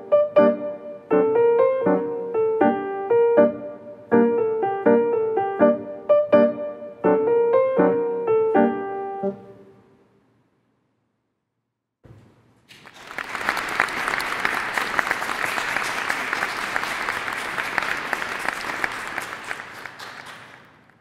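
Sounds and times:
audience applauding: 0:12.7 - 0:21.0.

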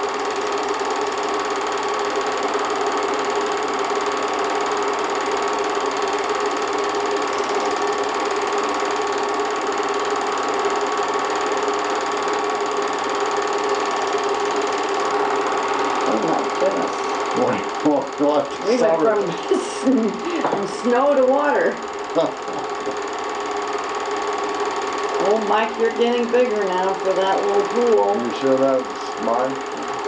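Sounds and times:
film projector whirring: 0:00.0 - 0:30.0.

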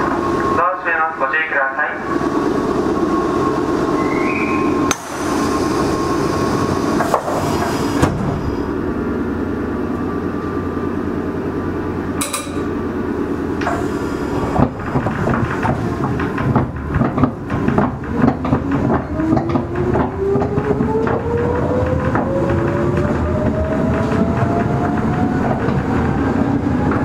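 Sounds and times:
train rumble: 0:00.0 - 0:27.0
traction motor whine rising: 0:02.1 - 0:16.5, 0:17.4 - 0:27.0
sharp clack: 0:12.2 - 0:12.7
wheels clattering over rail joints: 0:13.5 - 0:27.0.

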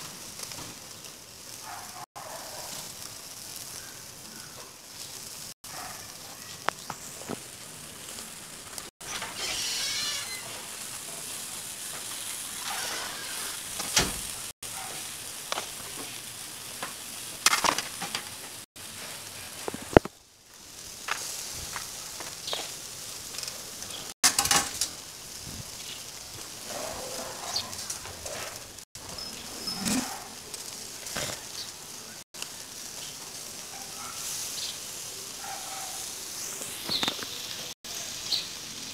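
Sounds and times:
chicken sizzling on a grill: 0:00.0 - 0:38.9
pops and crackles: 0:06.5 - 0:08.9, 0:15.4 - 0:25.1, 0:27.8 - 0:31.8, 0:32.4 - 0:33.1, 0:36.4 - 0:37.7.

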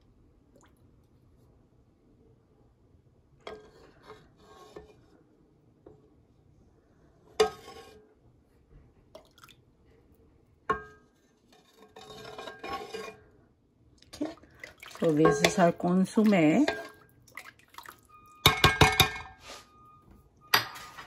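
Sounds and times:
liquid being scooped and poured: 0:11.4 - 0:13.3, 0:14.0 - 0:18.6
metal ladle knocking on metal pot: 0:15.0 - 0:16.9, 0:18.4 - 0:19.3.

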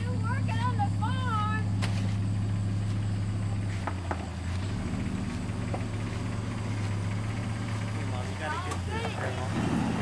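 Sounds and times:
pickup truck engine idling: 0:00.0 - 0:10.0.

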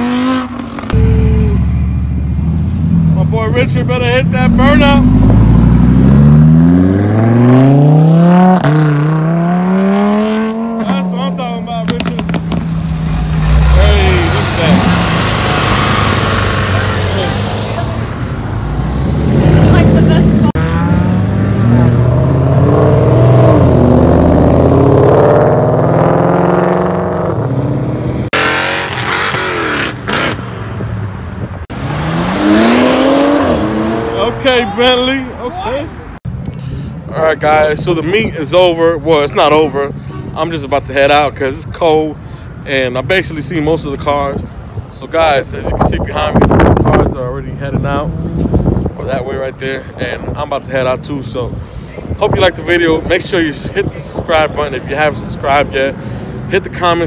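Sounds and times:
sports car engine accelerating: 0:04.0 - 0:30.9, 0:31.7 - 0:34.4.

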